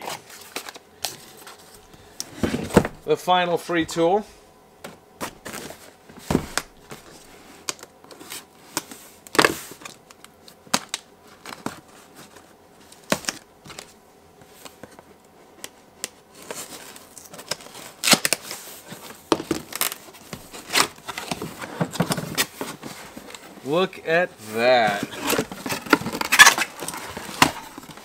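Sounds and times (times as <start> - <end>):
knife slitting packing tape: 16.9 - 18.5, 25.2 - 27.8
cardboard flaps scraping and tearing: 24.8 - 28.0.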